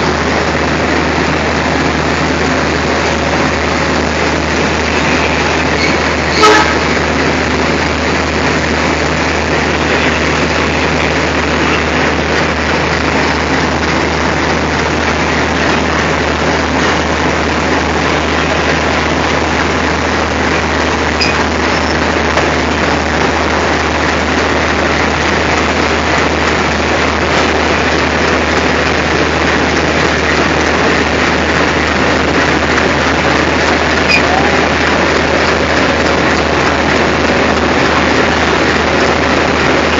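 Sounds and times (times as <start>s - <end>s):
diesel locomotive engine rumbling: 0.0s - 39.9s.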